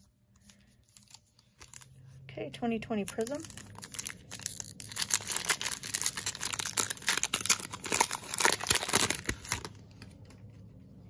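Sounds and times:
foil wrapper tearing and crinkling: 3.0s - 9.8s.

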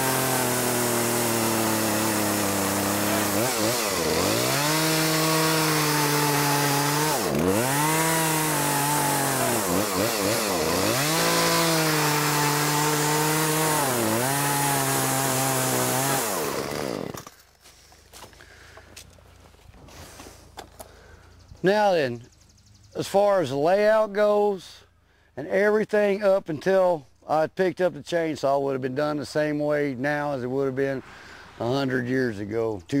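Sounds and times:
chainsaw cutting log: 0.0s - 17.5s.

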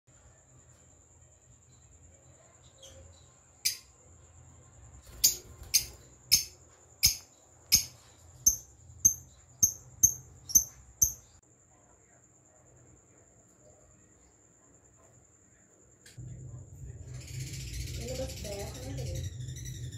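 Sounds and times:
lovebirds chirping: 5.1s - 11.4s, 17.2s - 19.9s.

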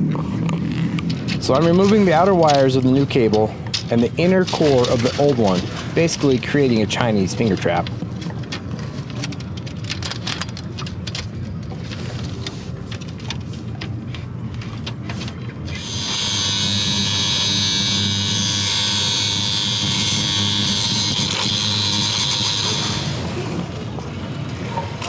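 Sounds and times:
angle grinder cutting wire: 1.4s - 6.3s, 15.7s - 23.4s.

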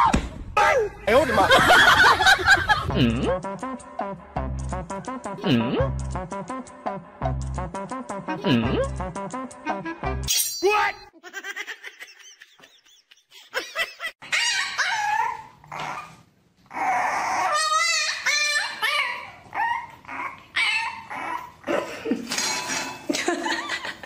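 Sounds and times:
dogs whining and yipping: 14.2s - 21.7s.

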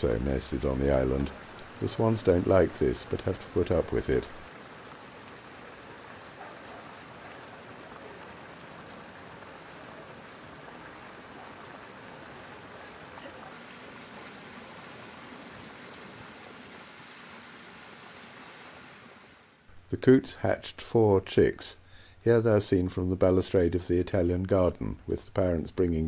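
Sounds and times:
running water rushing: 0.0s - 19.7s.

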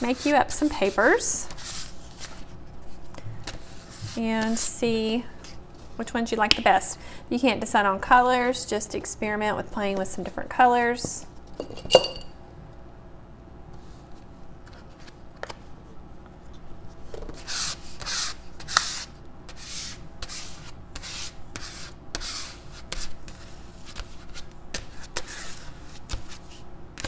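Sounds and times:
card scraping paint on paper: 0.0s - 2.4s, 17.4s - 26.6s.

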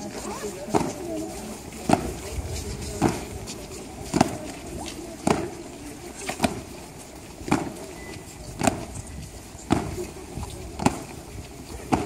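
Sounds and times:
boots stamping on stone: 6.3s - 12.0s.

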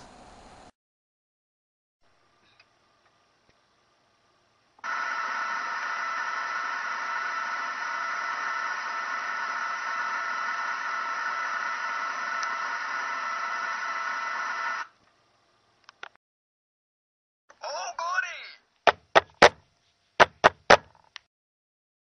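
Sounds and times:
television static hiss: 4.8s - 15.0s.

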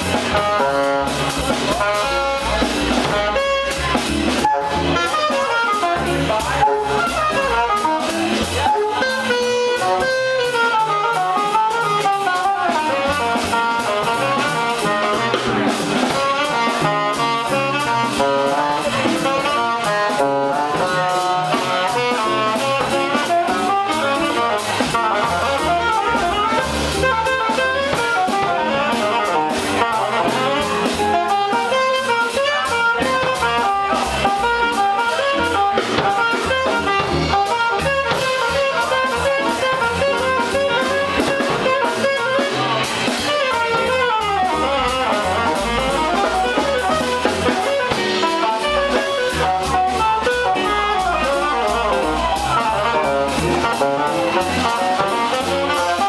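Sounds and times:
drum kit with cymbals: 0.0s - 56.0s
saxophone: 0.0s - 56.0s
upright double bass: 0.0s - 56.0s
electric guitar: 14.2s - 56.0s.

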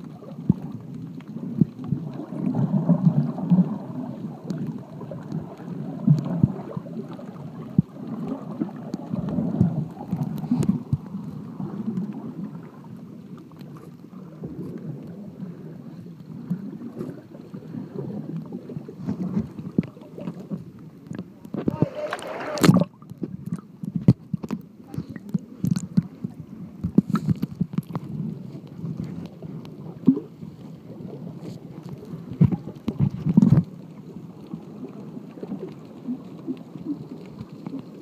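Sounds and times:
underwater rumble of moving water: 0.0s - 38.0s
faint clicks and knocks: 18.3s - 30.2s, 31.4s - 38.0s.

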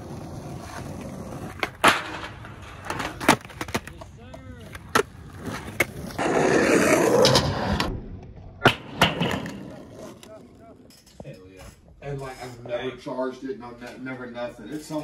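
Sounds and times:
skateboard wheels rolling: 0.0s - 10.9s
skateboard clacks: 1.4s - 6.2s.

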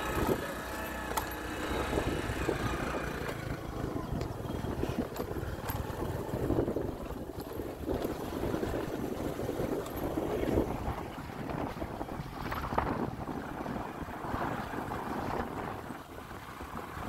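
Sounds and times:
motorbike engine running: 0.0s - 11.7s
wind buffeting microphone: 0.0s - 17.0s.

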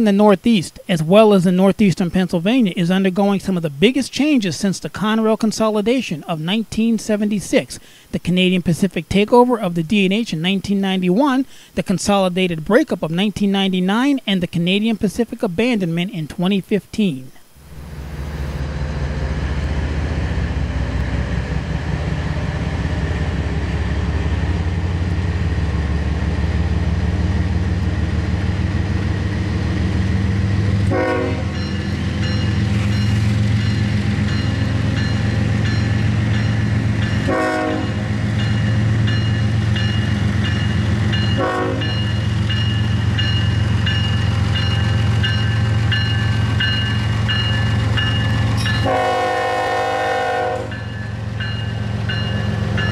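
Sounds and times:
diesel locomotives droning: 17.6s - 52.9s.

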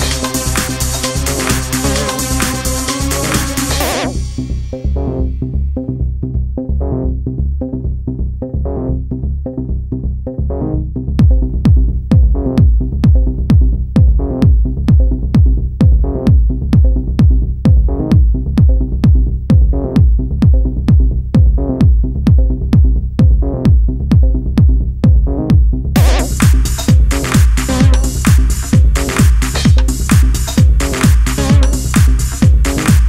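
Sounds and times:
kick drum beat: 0.0s - 4.2s, 11.1s - 33.0s
electronic dance music: 0.0s - 5.3s, 11.2s - 33.0s.

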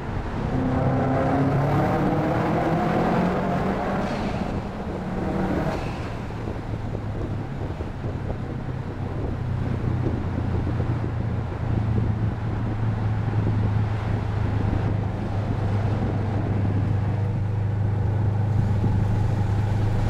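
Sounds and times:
car engine accelerating: 0.0s - 20.0s.

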